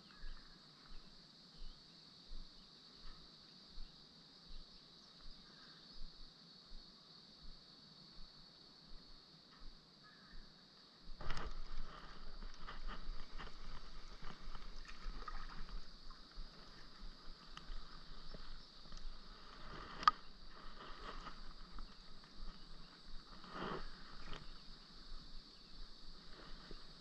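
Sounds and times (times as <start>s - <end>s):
light water splashing: 12.4s - 18.0s.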